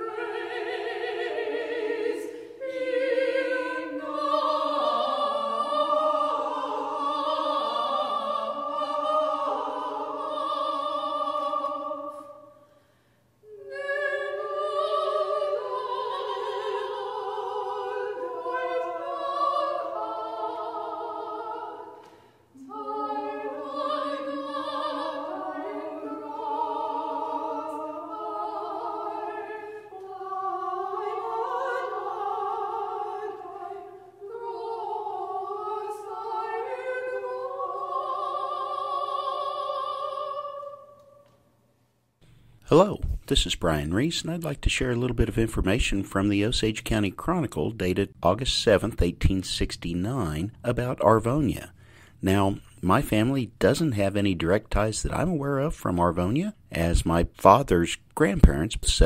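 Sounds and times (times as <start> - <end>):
operatic singing with vibrato: 0.0 - 41.4.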